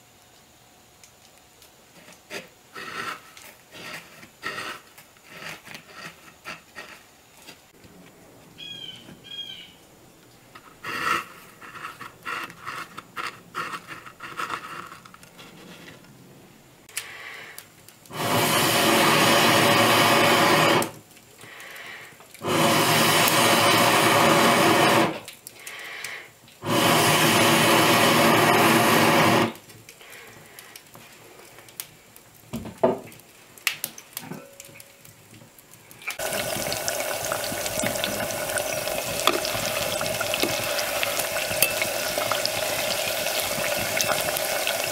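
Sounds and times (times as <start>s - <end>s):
frying sizzle: 18.0s - 44.9s
air blowing through a tube: 18.1s - 21.0s, 22.4s - 25.2s, 26.6s - 29.6s, 36.2s - 44.9s.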